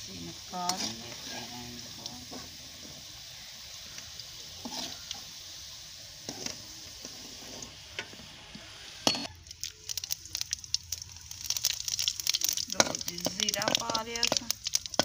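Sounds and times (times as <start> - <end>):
hot oil sizzling: 0.0 - 15.0
seeds spluttering in hot oil: 0.0 - 15.0.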